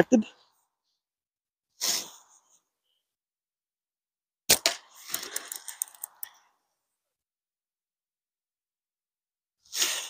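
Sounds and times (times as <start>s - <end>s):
slingshot bands snapping: 4.5s - 6.3s.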